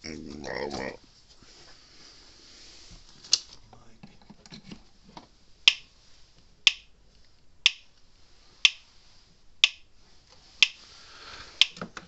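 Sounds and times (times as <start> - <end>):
electric fence energizer clicking: 9.6 - 9.9, 11.6 - 11.8.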